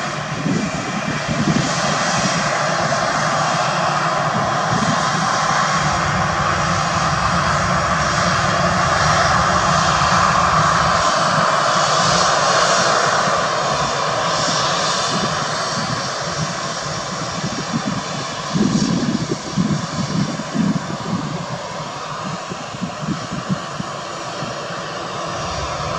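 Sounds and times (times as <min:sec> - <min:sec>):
jet engines taxiing: 0:00.0 - 0:25.9
deep uneven rumble: 0:05.0 - 0:11.4, 0:25.0 - 0:25.9.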